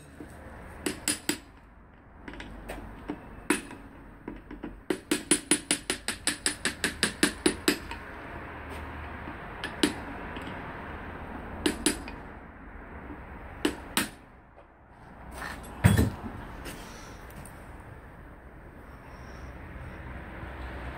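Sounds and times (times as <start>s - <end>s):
hammer striking chisel on metal: 0.8s - 1.6s, 3.5s - 3.9s, 4.9s - 8.0s, 9.6s - 10.0s, 11.6s - 12.2s, 13.6s - 14.2s.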